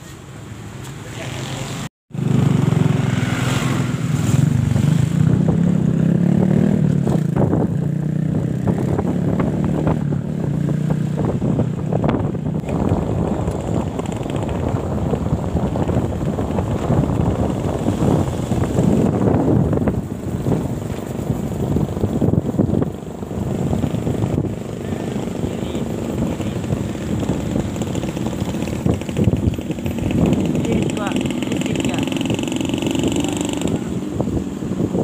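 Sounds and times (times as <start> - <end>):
wind rushing over microphone: 1.1 - 35.0
motorcycle engine running: 1.2 - 35.0.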